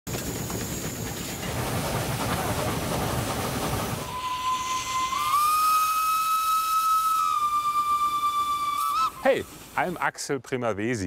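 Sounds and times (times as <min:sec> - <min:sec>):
steam whistle: 0:04.0 - 0:09.5.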